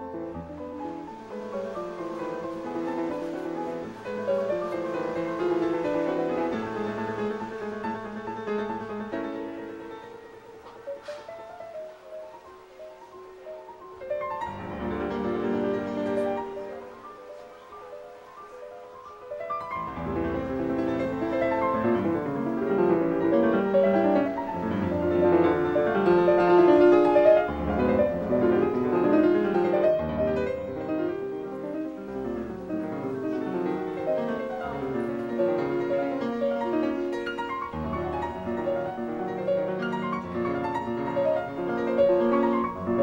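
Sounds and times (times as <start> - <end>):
piano music: 0.0 - 43.0.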